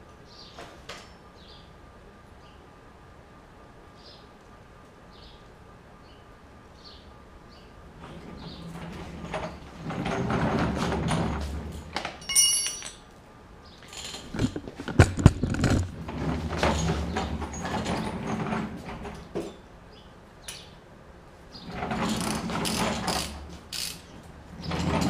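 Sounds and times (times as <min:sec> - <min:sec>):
stool casters rolling on floor: 0:07.9 - 0:13.0, 0:13.8 - 0:19.6, 0:21.5 - 0:25.0
hand tools knocking: 0:12.2 - 0:13.0
metal tools clinking: 0:12.2 - 0:13.1.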